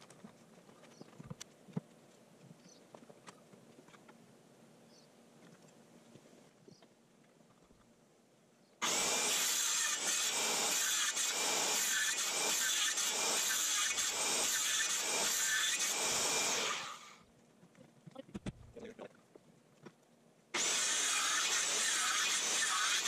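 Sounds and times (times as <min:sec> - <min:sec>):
power tool cutting wood: 0:08.8 - 0:17.2, 0:20.6 - 0:23.0.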